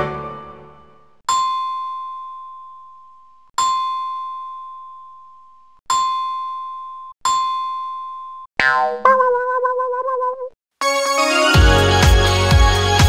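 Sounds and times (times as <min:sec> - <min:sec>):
bell-like ding chime: 0:01.3 - 0:03.0, 0:03.6 - 0:05.3.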